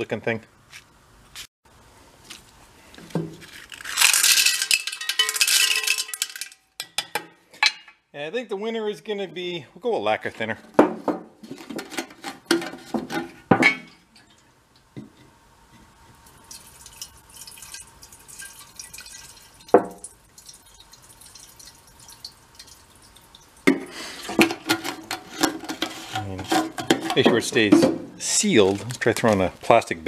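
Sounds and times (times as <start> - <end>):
metal can clattering: 3.2 - 7.9, 23.7 - 28.1
metal can clinking: 3.6 - 7.9, 23.6 - 28.0
liquid trickling and dripping: 16.2 - 23.9.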